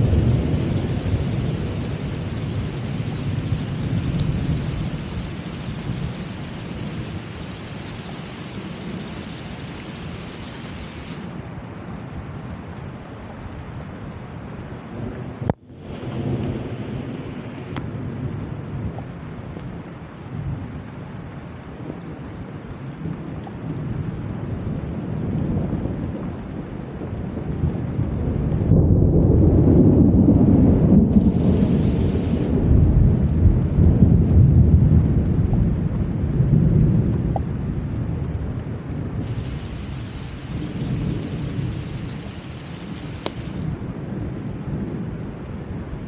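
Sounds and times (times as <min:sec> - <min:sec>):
thunder rolling: 0:00.0 - 0:11.3, 0:26.9 - 0:37.4, 0:39.0 - 0:45.1
rain falling: 0:00.0 - 0:46.0.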